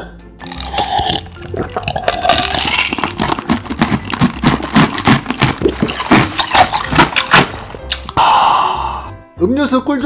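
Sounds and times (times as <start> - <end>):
gulping fizzy drink: 0.4 - 8.1
ice being chewed: 0.4 - 8.2
ice cubes rattling in glass: 0.5 - 7.5.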